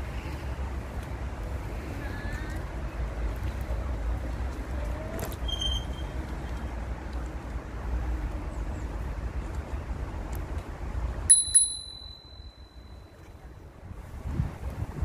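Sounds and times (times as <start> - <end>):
bike rolling noise: 0.0 - 15.0
short high ring: 11.3 - 13.2
wind buffeting microphone: 13.5 - 15.0.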